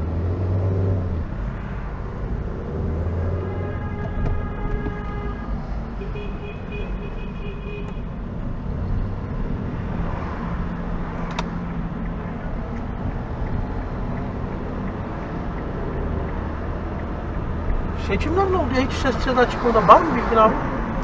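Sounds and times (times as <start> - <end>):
car engine and road rumble: 0.0 - 21.0
sharp click: 11.3 - 11.6.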